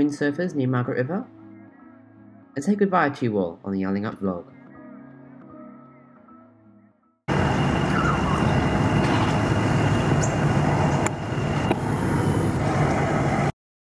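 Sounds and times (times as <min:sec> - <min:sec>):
car road and wind noise: 0:07.3 - 0:13.5.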